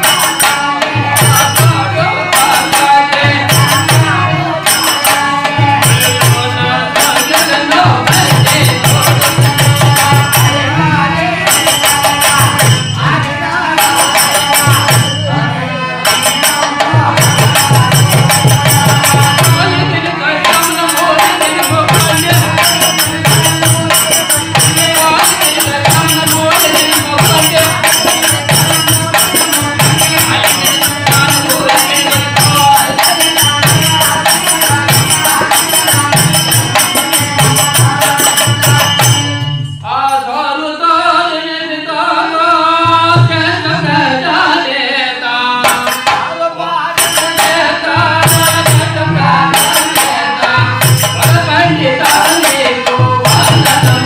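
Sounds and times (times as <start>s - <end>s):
man singing: 0.0s - 54.0s
drum beat: 1.2s - 10.7s, 16.1s - 19.8s, 20.5s - 39.4s, 47.0s - 54.0s.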